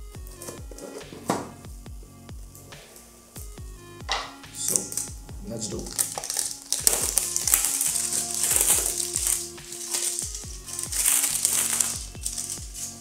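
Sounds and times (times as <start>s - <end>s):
electronic beat music: 0.0s - 13.0s
plastic wrap crinkling: 5.8s - 13.0s.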